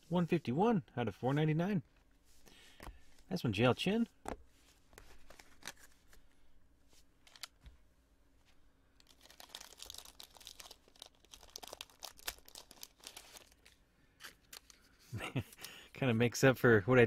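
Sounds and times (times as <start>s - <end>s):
wrappers and cards crinkling: 4.7s - 6.3s, 7.2s - 7.6s, 8.9s - 15.8s.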